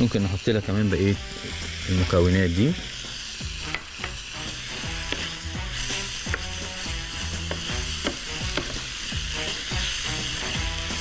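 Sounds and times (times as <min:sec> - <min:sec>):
meat sizzling in a frying pan: 0:00.0 - 0:11.0
wooden spoon scraping a pan: 0:03.7 - 0:11.0.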